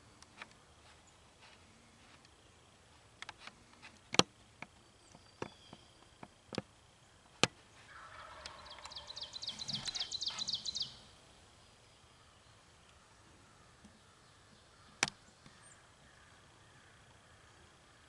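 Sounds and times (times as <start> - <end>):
turkey gobbling: 7.9 - 10.9
sharp single clicks: 14.9 - 15.6.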